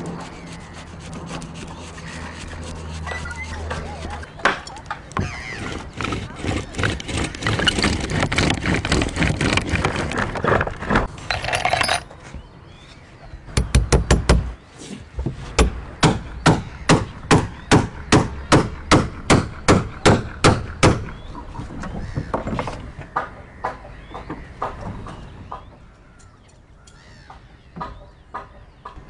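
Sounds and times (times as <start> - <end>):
hand tool boring into wood: 5.2 - 12.0.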